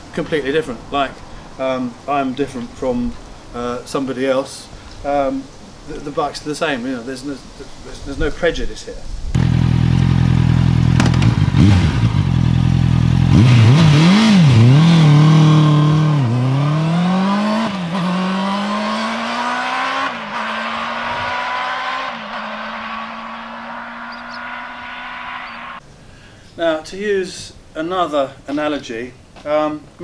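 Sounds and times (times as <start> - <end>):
motorcycle engine revving and accelerating: 9.4 - 25.8.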